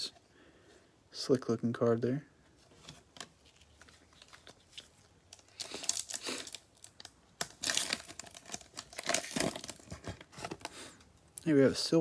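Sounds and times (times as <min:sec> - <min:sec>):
foil wrapper crinkling and tearing: 0:03.8 - 0:10.8.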